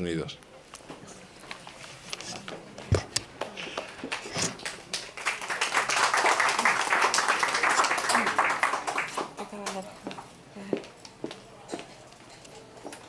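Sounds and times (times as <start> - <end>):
audience clapping: 3.3 - 10.2.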